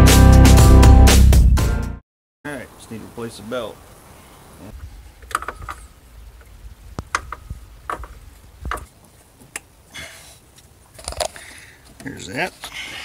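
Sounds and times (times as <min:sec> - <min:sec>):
metallic clicks and knocks: 0:05.2 - 0:09.7.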